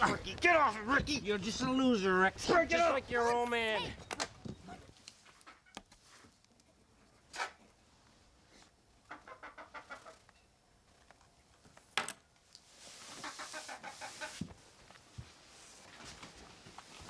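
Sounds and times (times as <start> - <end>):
chicken clucking: 9.1 - 10.2, 13.1 - 14.4.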